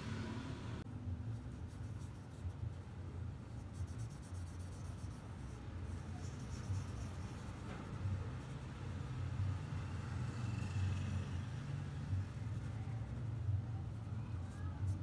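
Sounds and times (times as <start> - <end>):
marker rubbing across paper: 1.3 - 2.8, 3.5 - 9.0.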